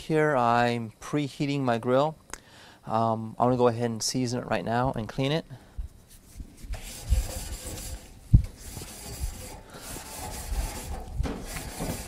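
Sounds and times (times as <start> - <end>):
grill brush scraping grates: 6.1 - 12.0.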